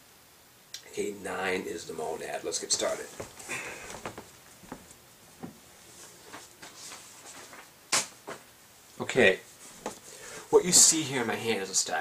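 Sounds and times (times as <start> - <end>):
handling knocks and rustles: 2.8 - 8.5, 9.6 - 10.1.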